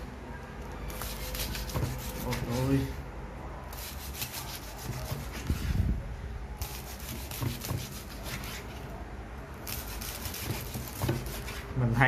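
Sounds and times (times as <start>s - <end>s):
knife sawing crispy skin: 0.9s - 3.0s, 3.7s - 5.8s, 6.6s - 11.7s.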